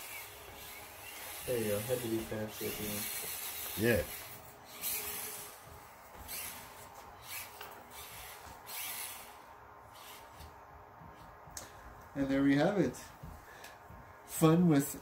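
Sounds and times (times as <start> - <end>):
small electric motor whirring: 0.0 - 10.6.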